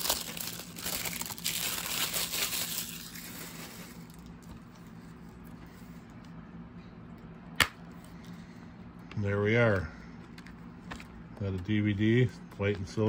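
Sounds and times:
plastic shrink-wrap crinkling: 0:00.0 - 0:04.9
faint steady hum: 0:00.0 - 0:13.0.

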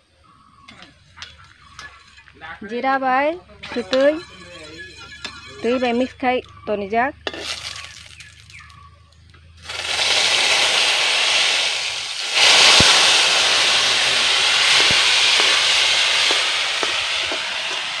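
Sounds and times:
loud sizzling hiss in oil: 0:00.7 - 0:02.8, 0:03.5 - 0:06.2, 0:09.6 - 0:18.0.

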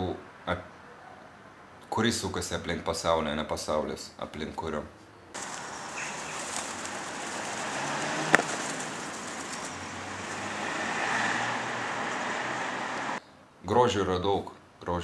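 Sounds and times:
pigeons: 0:05.4 - 0:13.1
traffic hiss: 0:05.4 - 0:13.2.

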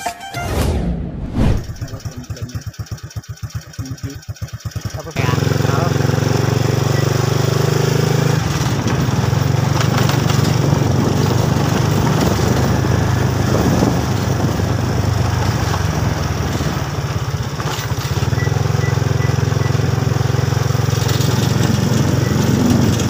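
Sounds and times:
rough rushing noise: 0:00.6 - 0:02.4
small motorcycle engine running: 0:01.7 - 0:23.0.

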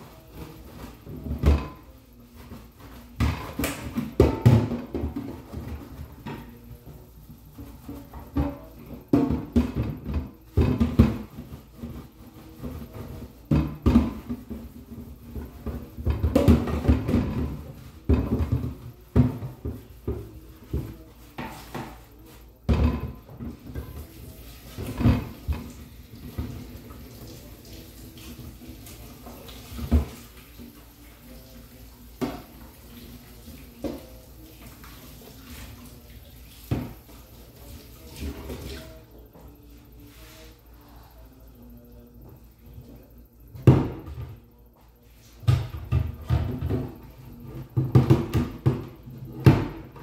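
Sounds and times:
dishes clattering in a sink: 0:00.0 - 0:39.5, 0:45.4 - 0:50.0.

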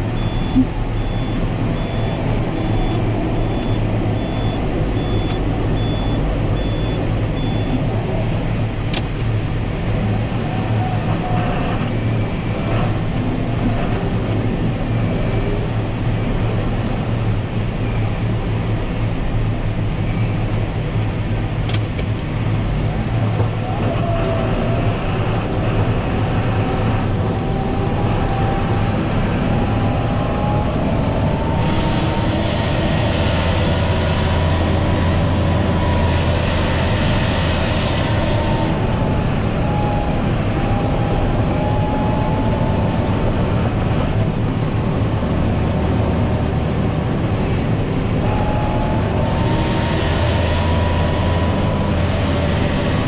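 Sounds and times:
low hum: 0:00.0 - 0:53.0
tractor diesel engine running: 0:00.0 - 0:53.0
thin engine whine: 0:22.7 - 0:53.0.

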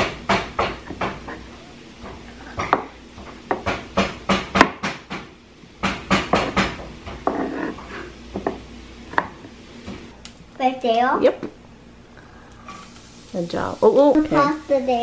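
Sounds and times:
knife chopping on wooden board: 0:00.0 - 0:01.4, 0:02.1 - 0:07.6.

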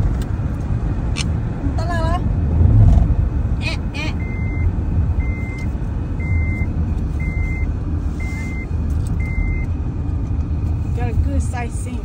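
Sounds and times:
car driving rumble: 0:00.0 - 0:12.0
high electronic beep: 0:04.1 - 0:05.6, 0:06.2 - 0:09.6.

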